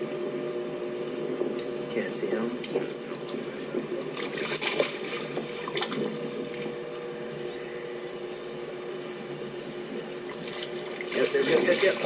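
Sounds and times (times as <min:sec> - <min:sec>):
steady hum: 0:00.0 - 0:12.0
water splashing against a boat: 0:02.6 - 0:06.9, 0:10.0 - 0:12.0.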